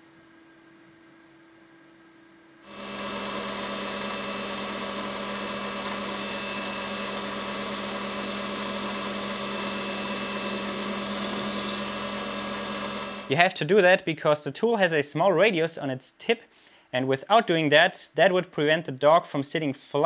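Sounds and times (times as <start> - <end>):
metal lathe whining: 2.7 - 13.3.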